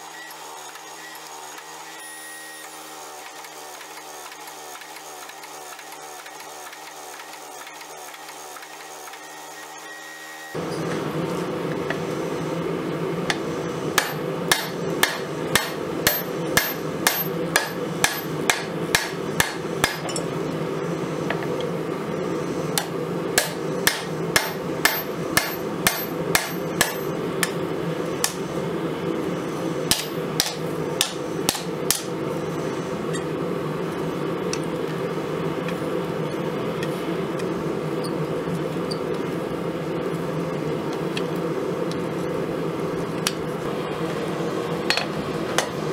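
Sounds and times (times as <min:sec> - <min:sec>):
steady low hum: 0:10.6 - 0:45.9
hammer striking metal on anvil: 0:14.0 - 0:20.3, 0:22.8 - 0:27.6, 0:29.9 - 0:32.1.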